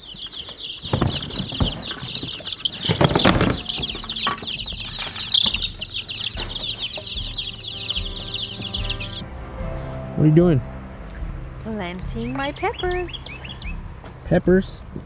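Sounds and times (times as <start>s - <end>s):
feed rustling and knocking: 0.0s - 9.2s
chicks peeping: 0.0s - 10.4s, 11.0s - 14.8s.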